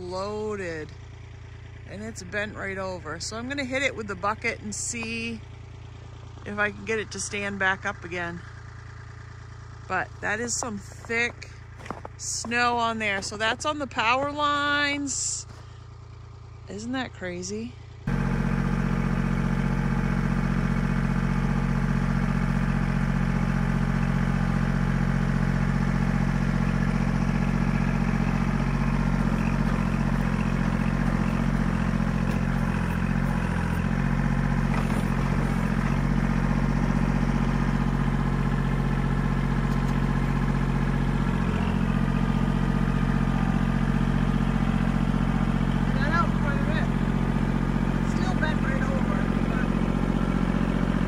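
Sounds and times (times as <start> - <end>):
diesel tractor engine running: 0.0 - 51.0.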